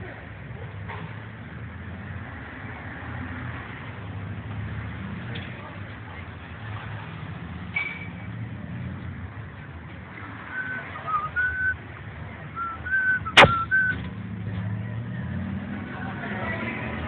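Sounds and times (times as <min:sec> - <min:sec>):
street traffic rumble: 0:00.0 - 0:17.0
person whistling a tune: 0:10.5 - 0:11.8, 0:12.6 - 0:14.0
sharp knock: 0:13.3 - 0:13.9.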